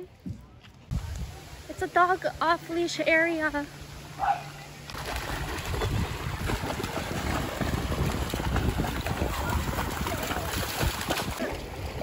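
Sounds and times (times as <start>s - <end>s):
wind gusting across microphone: 4.9s - 12.0s.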